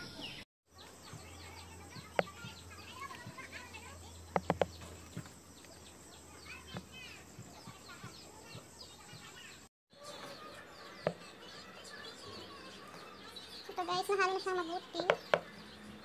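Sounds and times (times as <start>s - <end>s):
birds chirping: 0.0s - 16.0s
spatula knocking plastic bowl: 4.3s - 4.8s.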